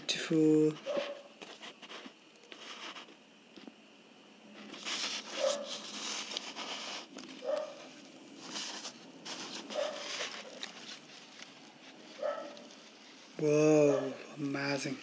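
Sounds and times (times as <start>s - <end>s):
plastic bottle crinkling: 4.6s - 13.0s.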